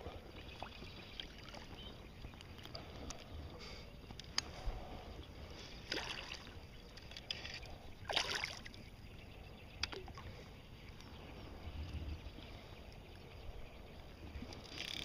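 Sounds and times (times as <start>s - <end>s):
water sloshing and lapping: 0.0s - 9.0s, 9.8s - 13.0s
short splashes: 5.9s - 6.6s, 8.1s - 8.7s.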